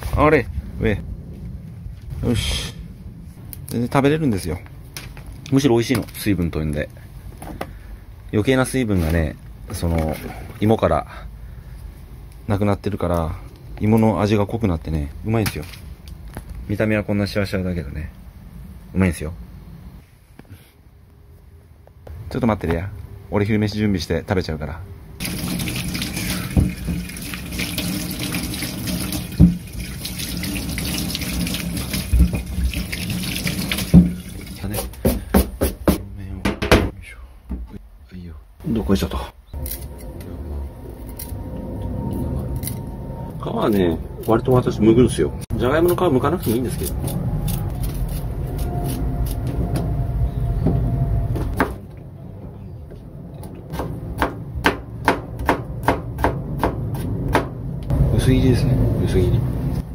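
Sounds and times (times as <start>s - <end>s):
low steady rumble: 0.0s - 5.6s, 36.0s - 59.9s
tap water running into sink: 25.2s - 34.6s
knocks: 34.9s - 37.8s.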